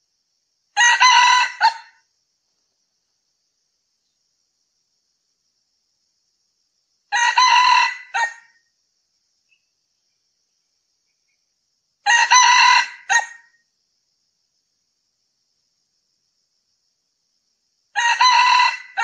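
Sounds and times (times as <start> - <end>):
rooster crowing: 0.8 - 2.0, 7.1 - 8.6, 12.0 - 13.5, 17.9 - 19.0.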